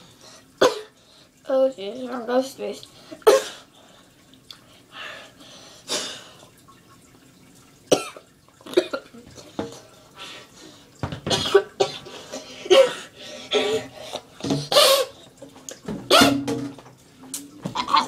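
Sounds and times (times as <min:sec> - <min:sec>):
boy speaking: 0:01.4 - 0:02.8
boy coughing and clearing throat: 0:07.9 - 0:09.1, 0:11.3 - 0:12.0, 0:16.1 - 0:16.5.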